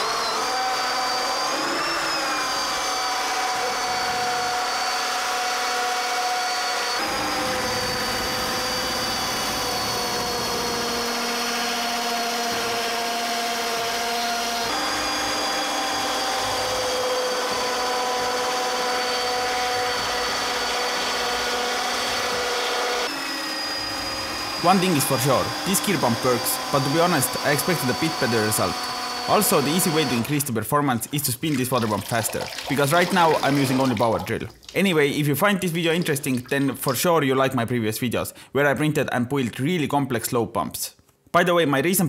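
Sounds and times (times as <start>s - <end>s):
cordless drill whining: 0.0s - 30.5s, 32.7s - 34.0s
water pumping: 12.3s - 37.0s.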